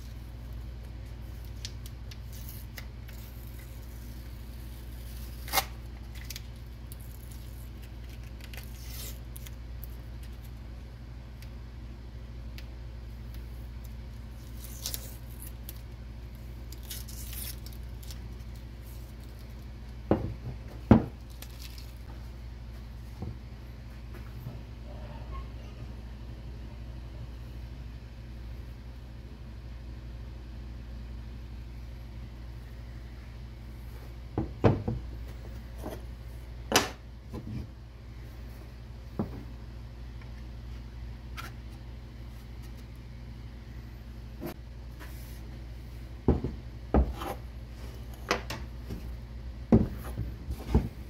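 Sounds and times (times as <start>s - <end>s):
steady low hum: 0.0s - 51.0s
masking tape peeling and crumpling: 1.2s - 10.6s, 14.3s - 16.0s, 16.6s - 19.7s.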